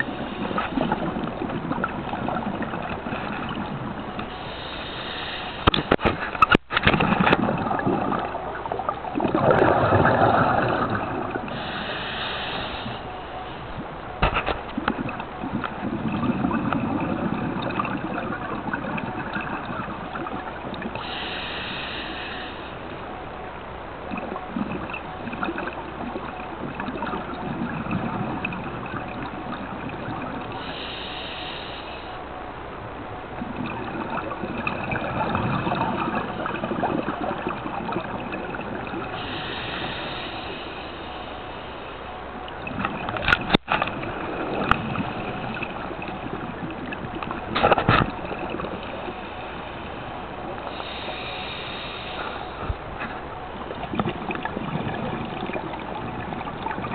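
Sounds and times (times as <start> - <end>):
exhaled bubbles gurgling: 0.0 - 23.2, 24.0 - 56.9
regulator inhalation hiss: 4.4 - 5.7, 11.6 - 13.0, 21.0 - 22.7, 30.6 - 32.1, 39.2 - 41.4, 50.7 - 52.6.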